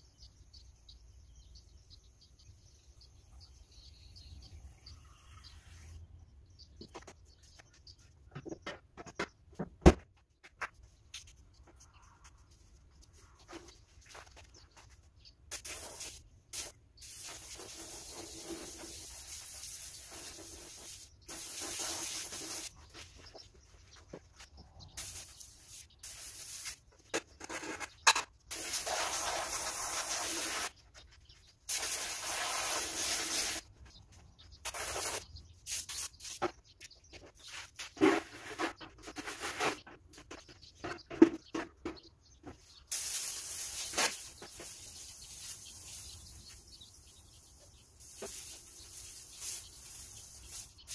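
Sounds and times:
garden hose spraying water: 15.4s - 22.8s, 24.9s - 27.0s, 28.5s - 30.8s, 31.6s - 33.7s, 34.6s - 36.6s, 42.8s - 50.9s.

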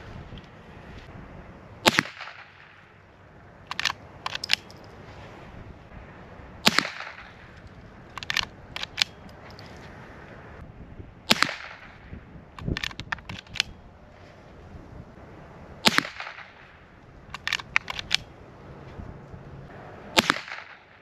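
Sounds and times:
rifle shots: 1.8s - 2.9s, 6.6s - 7.6s, 11.3s - 12.1s, 15.8s - 16.8s, 20.1s - 21.0s
metallic lever clicks: 3.7s - 4.9s, 8.1s - 9.8s, 12.6s - 13.8s, 17.3s - 18.3s.

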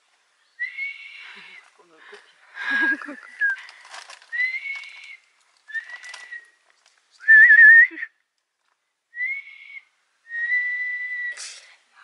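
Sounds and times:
person whistling: 4.3s - 4.9s, 7.2s - 8.1s, 9.2s - 9.5s, 10.3s - 11.4s.

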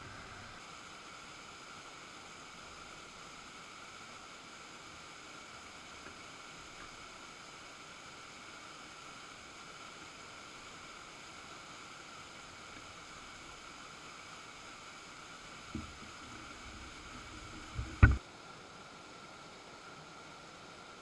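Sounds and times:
low thump: 17.7s - 18.2s.

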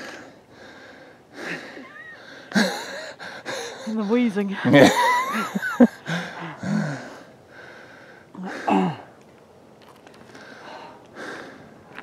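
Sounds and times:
person panting and wheezing: 0.0s - 4.1s, 5.9s - 9.1s.

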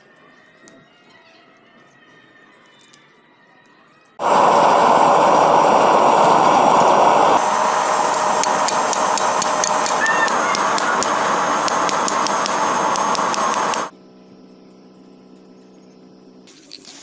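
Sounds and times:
machine rushing hiss with hum: 4.2s - 13.9s.

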